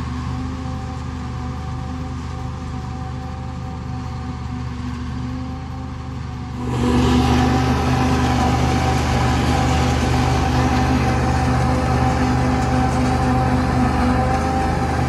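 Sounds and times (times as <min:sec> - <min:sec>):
tractor engine drone: 0:00.0 - 0:15.0
forage harvester chopping maize: 0:06.6 - 0:15.0.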